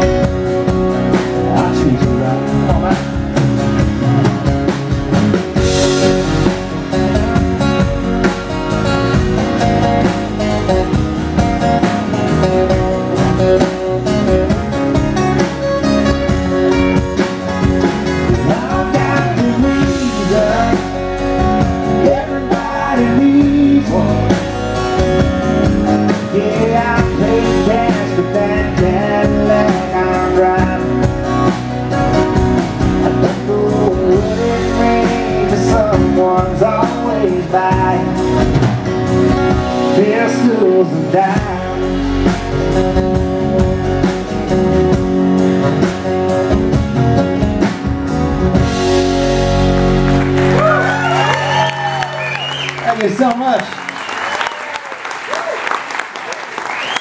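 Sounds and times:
acoustic guitars strummed: 0.0 - 54.1
bass: 0.0 - 57.0
drums: 0.0 - 57.0
man singing: 1.1 - 3.2, 18.2 - 24.7, 26.0 - 31.6, 33.0 - 38.6, 39.7 - 42.4.

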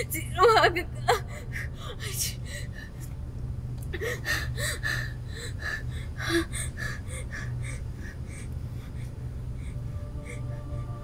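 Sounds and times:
woman sobbing: 0.0 - 3.0, 3.9 - 7.9
low steady hum: 0.0 - 11.0.

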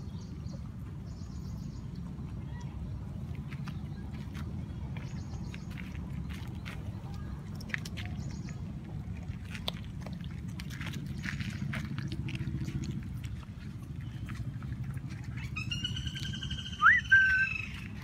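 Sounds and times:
puppies chewing from a steel bowl: 0.0 - 18.0.

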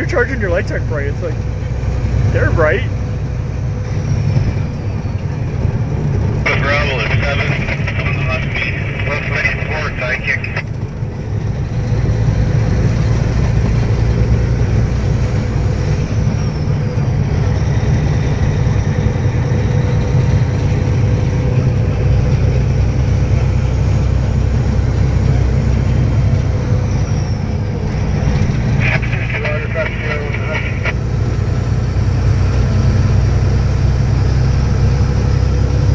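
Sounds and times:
road noise: 0.0 - 35.9
truck engine running under load: 0.0 - 35.9.

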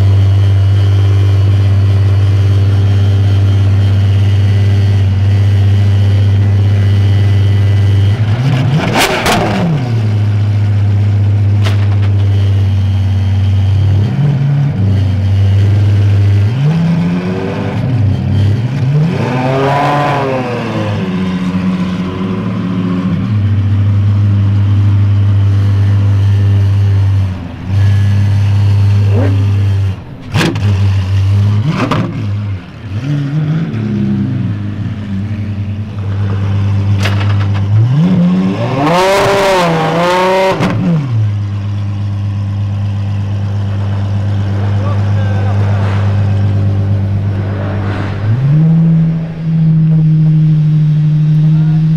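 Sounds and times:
car engine idling and revving: 0.0 - 51.9
exhaust cracks: 7.7 - 12.6, 34.4 - 38.1, 40.5 - 51.9.

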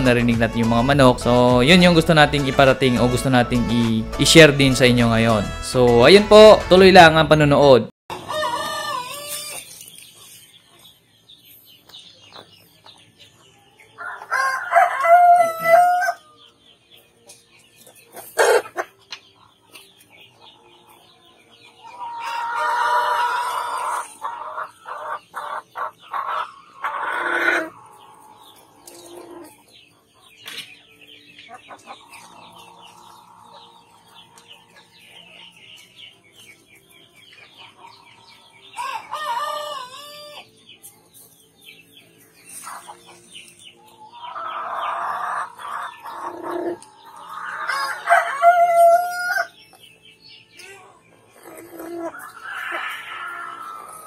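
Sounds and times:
hens clucking and squawking: 8.1 - 11.6, 12.3 - 16.4, 17.2 - 30.7, 31.4 - 41.4, 42.1 - 49.6, 50.6 - 54.0
rooster crowing: 14.0 - 16.2, 47.6 - 49.5.

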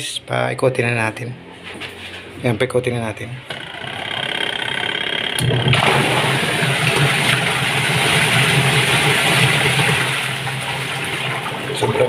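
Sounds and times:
washing machine motor hum: 3.4 - 12.0
washing machine tub churning: 3.5 - 12.0.

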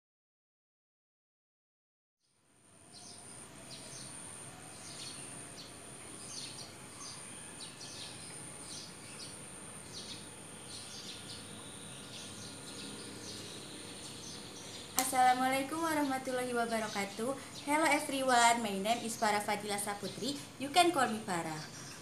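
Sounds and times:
faint background hiss: 2.3 - 22.0
small birds chirping: 2.9 - 22.0
high-pitched insect drone: 3.0 - 15.0.

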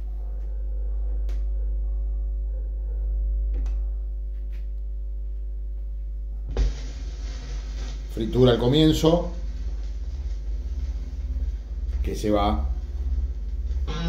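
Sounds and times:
record player humming: 0.0 - 14.0
stylus landing on record: 6.5 - 8.2
vinyl surface noise crackle: 6.5 - 14.0.

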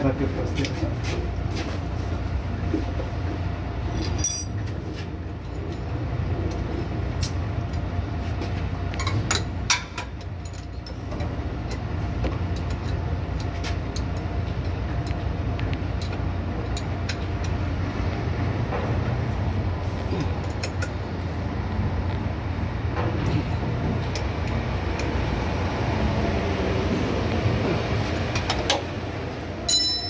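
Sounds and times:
steady low rumble: 0.0 - 30.0
hand tools clinking on metal: 3.9 - 4.6, 29.7 - 30.0.

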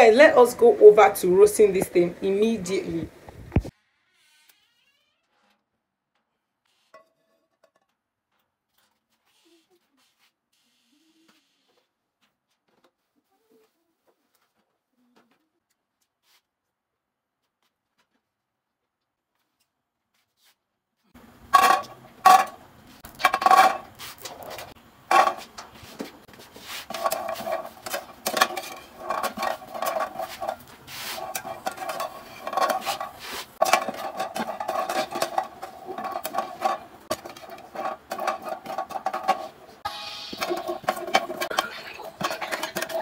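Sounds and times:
metal spatula scraping pan: 21.6 - 25.7, 26.6 - 43.0
seeds clattering in frying pan: 26.6 - 43.0.

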